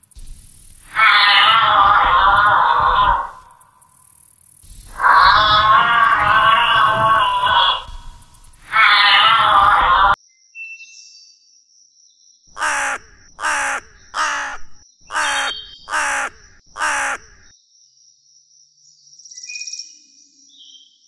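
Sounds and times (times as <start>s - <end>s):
faint bird chirps: 0.0s - 21.0s
crow cawing: 0.8s - 3.6s, 4.9s - 10.2s, 12.6s - 17.5s.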